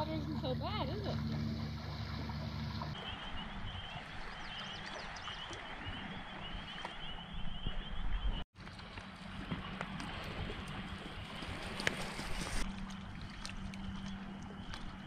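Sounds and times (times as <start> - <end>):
low steady hum: 0.0 - 4.7, 8.2 - 15.0.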